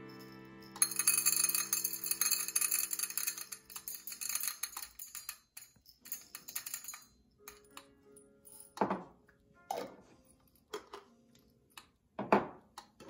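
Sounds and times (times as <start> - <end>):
coffee beans rattling in metal cup: 0.8 - 7.1.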